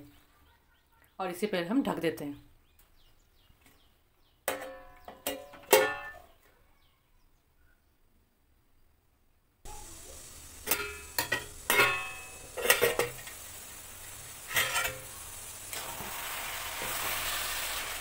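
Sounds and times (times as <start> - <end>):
steel lid clinking and scraping: 4.5 - 6.3, 10.6 - 13.4, 14.4 - 15.1
carrots frying in hot fat: 9.7 - 18.0.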